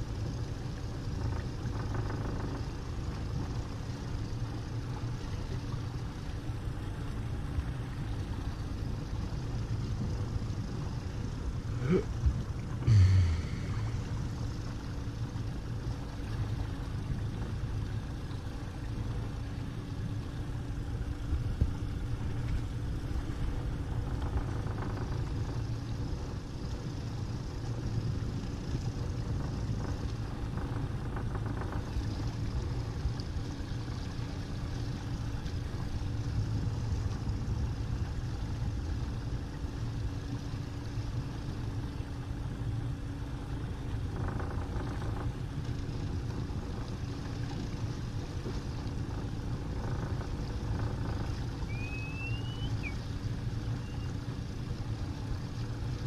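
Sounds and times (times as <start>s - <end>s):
outboard motor running: 0.0s - 56.0s
wind: 0.0s - 56.0s
water rushing: 11.0s - 20.5s, 43.8s - 56.0s.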